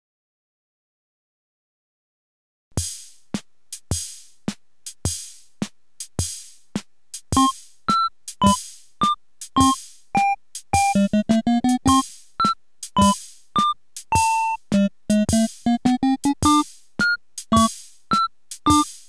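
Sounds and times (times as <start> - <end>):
drum machine beat: 2.8 - 19.0.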